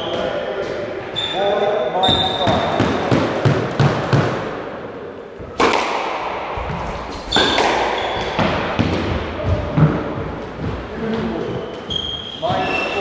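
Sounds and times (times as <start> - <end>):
squash ball hits echoing: 2.0 - 4.6, 5.4 - 11.3.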